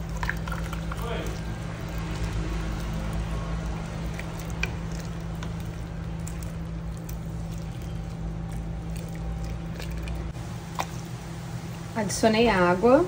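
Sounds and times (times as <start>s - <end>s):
wooden spoon stirring thick stew: 0.0s - 10.9s
steady low hum: 0.0s - 13.0s.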